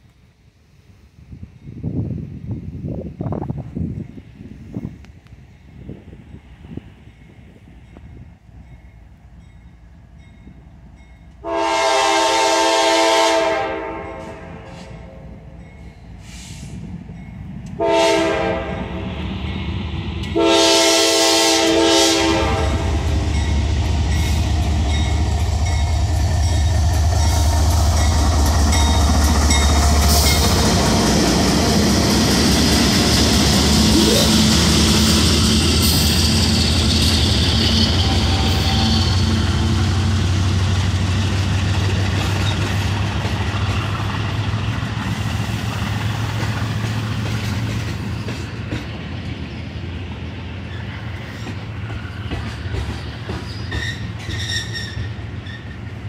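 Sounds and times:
wheels on rail: 0.0 - 56.0
locomotive engine rumble: 2.2 - 56.0
locomotive air horn blasts: 11.4 - 15.3, 17.8 - 19.0, 20.3 - 23.1, 37.9 - 39.8.

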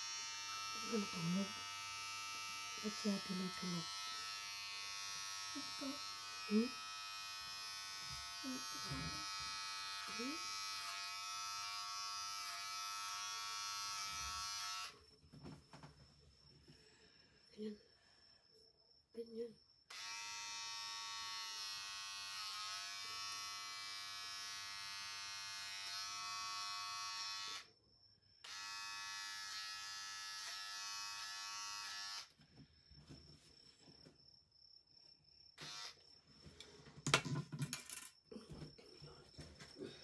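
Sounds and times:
electric hair clippers buzzing: 0.0 - 15.0, 19.9 - 27.7, 28.4 - 32.4, 35.6 - 36.0.

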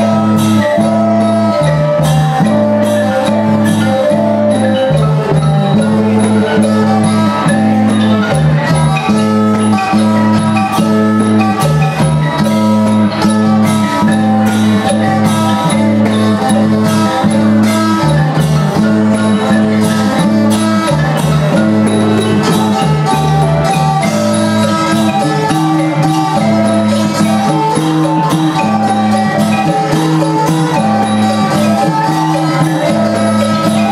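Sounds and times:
folk dance music ensemble: 0.0 - 33.9.

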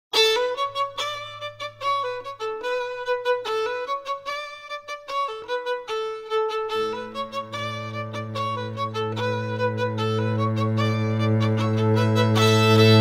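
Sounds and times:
instrumental music: 0.1 - 13.0.

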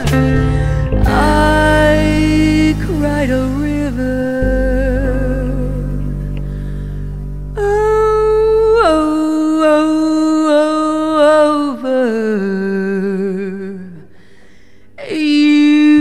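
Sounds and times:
jazz ballad accompaniment: 0.0 - 9.4
unaccompanied melodic line with vibrato: 0.0 - 10.4.

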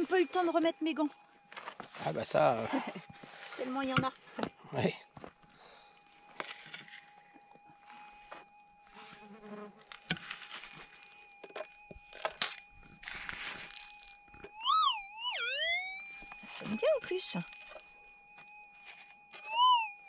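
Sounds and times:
metal detector buzzing tone: 0.0 - 5.0, 5.6 - 20.0
hand pick scraping stony soil: 6.4 - 7.1, 9.8 - 11.0, 12.2 - 14.1.

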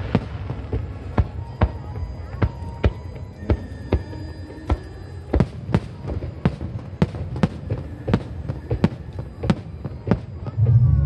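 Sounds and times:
fireworks bursting: 0.0 - 11.0
steady low rumble: 10.4 - 11.0.

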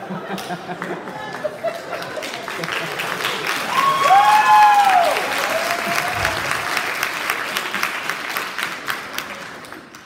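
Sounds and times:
audience applauding: 0.4 - 10.0
loud whoop: 3.7 - 6.6.

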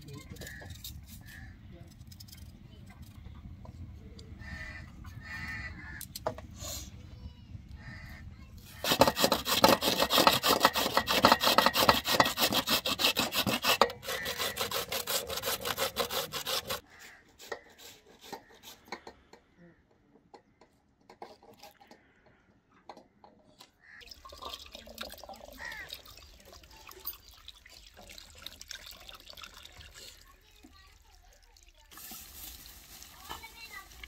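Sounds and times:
radish grated on metal grater: 8.8 - 16.8.

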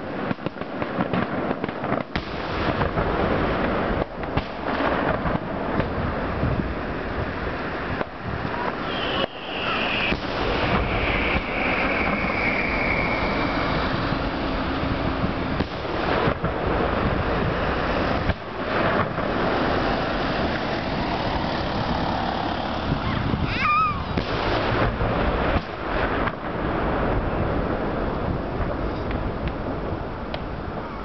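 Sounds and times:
fireworks booming and crackling: 0.0 - 31.0
falling firework whistle: 7.9 - 19.3, 22.8 - 26.4
wavering whistle: 8.8 - 14.7.

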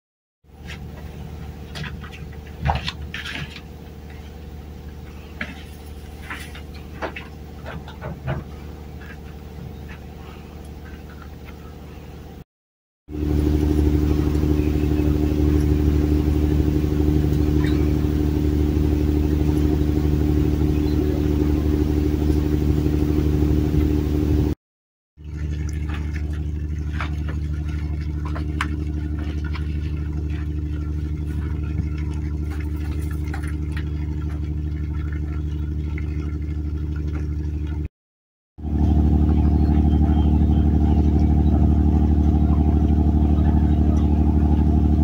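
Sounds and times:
engine hum: 0.5 - 12.4, 13.1 - 24.6, 25.2 - 37.9, 38.6 - 45.0.

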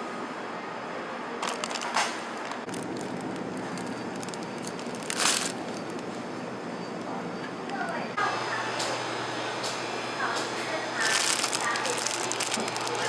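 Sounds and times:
plastic packaging crinkling: 1.4 - 6.3, 11.0 - 13.0.

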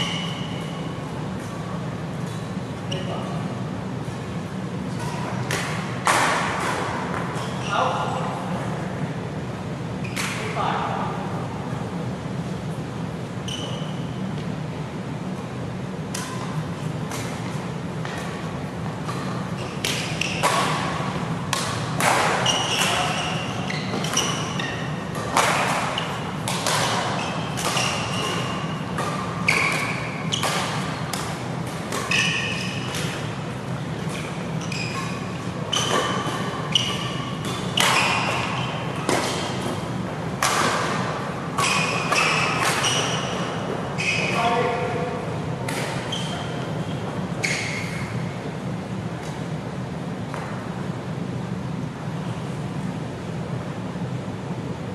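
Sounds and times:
shoes squeaking on court: 0.0 - 3.4, 6.6 - 8.2, 13.4 - 14.5, 16.2 - 40.1, 40.8 - 45.0, 45.7 - 48.3
rackets hitting shuttlecock: 4.8 - 7.6, 16.0 - 44.8, 45.6 - 46.8.

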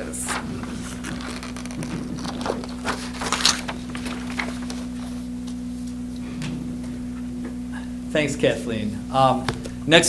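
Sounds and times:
handling rustles and knocks: 0.0 - 6.7
steady electrical hum: 0.0 - 10.0.

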